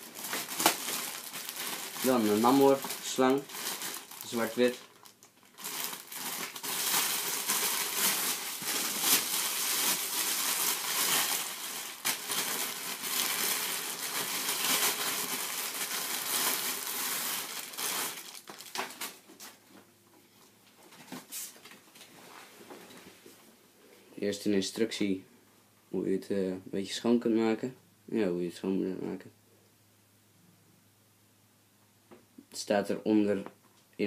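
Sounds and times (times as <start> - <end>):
plastic wrapping crinkling: 0.0 - 19.8.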